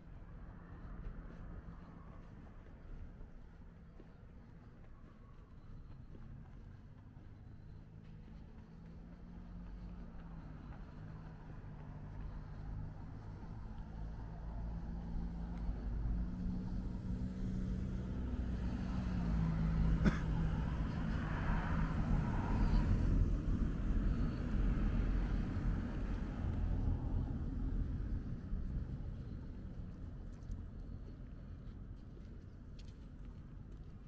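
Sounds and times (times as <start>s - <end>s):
car passing: 7.5s - 32.0s.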